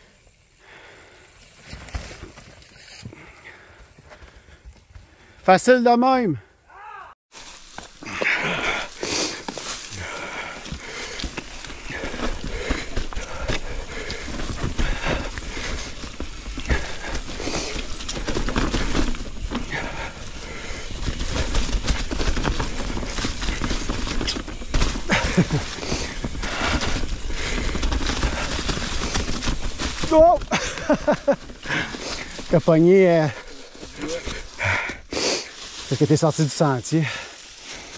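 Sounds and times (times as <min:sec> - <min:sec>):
tyres crunching through leaves: 0:07.3 - 0:37.9
bike rattling over rocks: 0:07.4 - 0:35.0.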